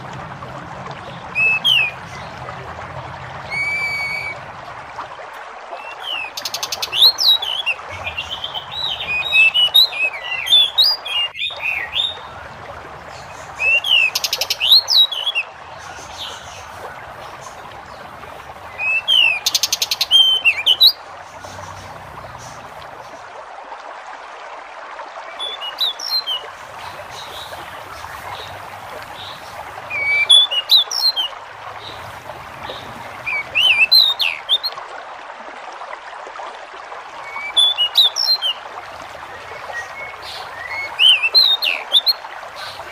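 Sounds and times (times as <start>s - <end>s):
bird singing whistled notes: 3.5s - 4.4s, 29.9s - 31.3s, 33.3s - 34.7s, 39.7s - 42.2s.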